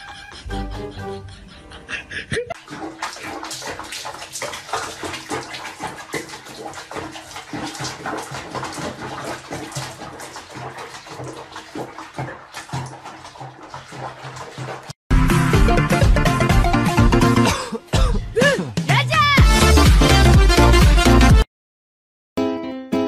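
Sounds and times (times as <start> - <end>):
water splashing in a plastic tub: 2.6 - 15.0.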